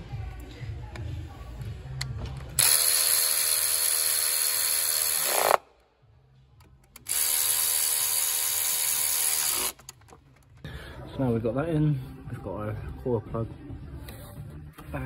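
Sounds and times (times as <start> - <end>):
electric ratchet motor whine: 2.6 - 5.6, 7.0 - 9.8.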